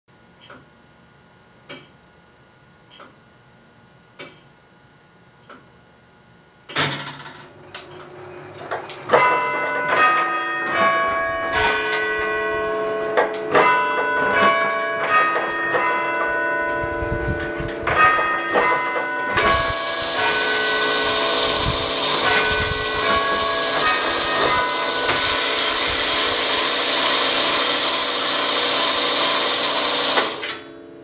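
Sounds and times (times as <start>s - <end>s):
loud mechanical clunk: 6.7s - 12.4s, 17.4s - 30.8s
tower bells chiming: 9.1s - 30.1s.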